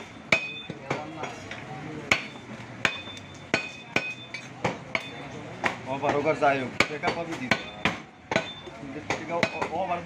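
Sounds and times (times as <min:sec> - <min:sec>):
cleaver chopping meat on wood: 0:05.6 - 0:10.0.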